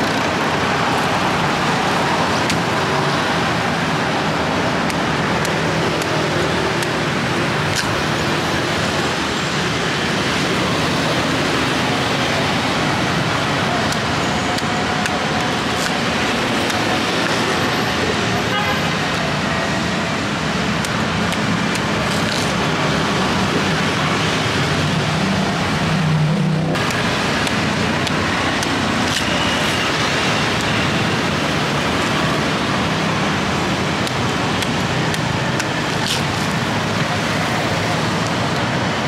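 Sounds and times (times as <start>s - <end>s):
street traffic: 0.0s - 39.0s.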